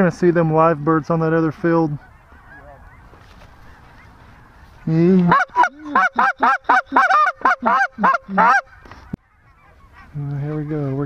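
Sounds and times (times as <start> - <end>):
goose calls clucking honks: 4.5 - 11.0.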